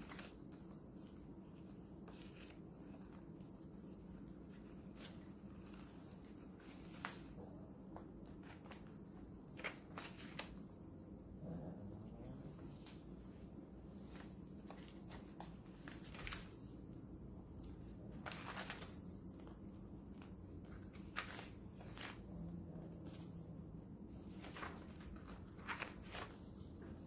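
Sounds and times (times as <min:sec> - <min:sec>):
paper pages turning: 0:00.0 - 0:07.4, 0:08.0 - 0:11.0, 0:14.0 - 0:16.8, 0:17.5 - 0:22.3, 0:24.2 - 0:27.0.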